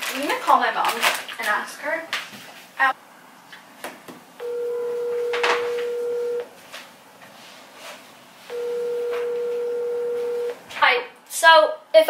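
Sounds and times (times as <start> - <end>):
phone ringback tone: 4.4 - 6.4, 8.5 - 10.6.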